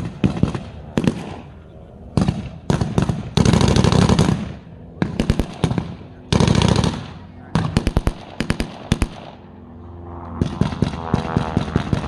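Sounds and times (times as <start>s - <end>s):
automatic gunfire burst: 5.2s - 9.3s.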